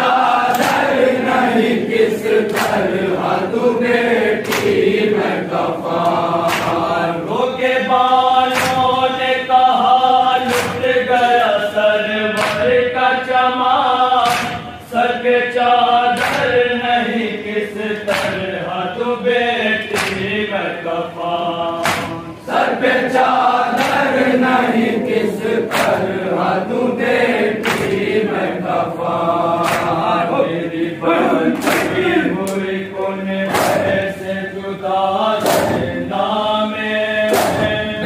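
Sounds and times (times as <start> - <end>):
men chanting a lament: 0.0 - 38.0
chest-beating slaps: 0.4 - 1.7, 2.3 - 3.4, 4.4 - 7.1, 8.5 - 9.2, 10.4 - 11.0, 12.3 - 12.8, 14.2 - 14.8, 16.1 - 16.7, 18.0 - 18.5, 19.8 - 20.4, 21.8 - 22.4, 23.6 - 26.5, 27.6 - 28.2, 29.5 - 30.2, 30.8 - 32.8, 33.4 - 34.1, 35.4 - 36.0, 37.2 - 38.0.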